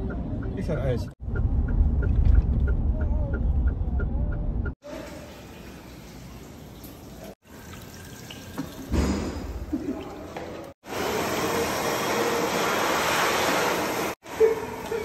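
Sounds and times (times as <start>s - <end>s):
water running into basin: 4.8s - 14.2s.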